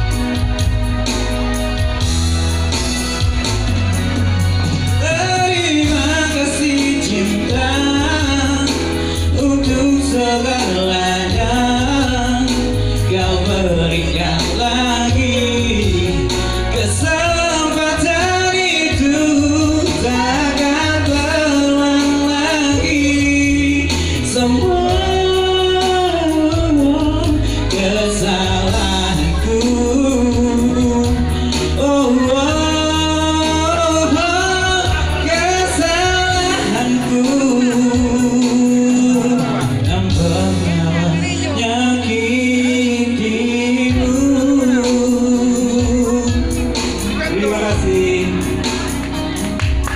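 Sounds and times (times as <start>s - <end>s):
electronic keyboard with bass: 0.0s - 49.9s
man singing a slow ballad: 0.0s - 49.9s.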